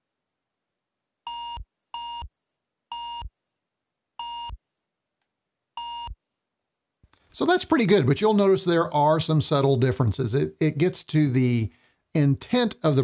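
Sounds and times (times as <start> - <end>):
short buzzy electronic beeps: 1.3 - 2.3, 2.9 - 3.3, 4.2 - 4.6, 5.8 - 6.2.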